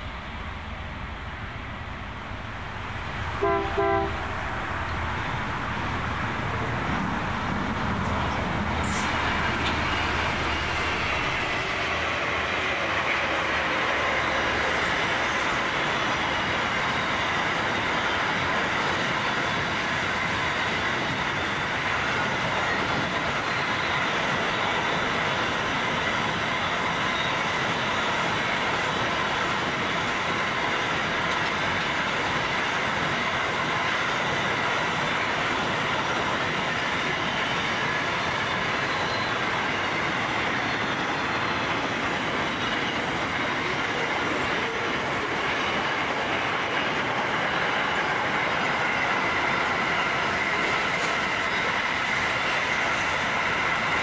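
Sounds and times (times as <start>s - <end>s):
low hum: 0.0s - 11.6s
train wheels rumbling on rails: 0.0s - 54.0s
clicking over rail joints: 30.9s - 32.5s.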